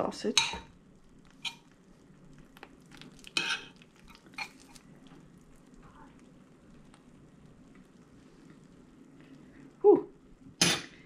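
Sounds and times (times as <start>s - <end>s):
metal spoon scraping baking dish: 3.4s - 3.7s.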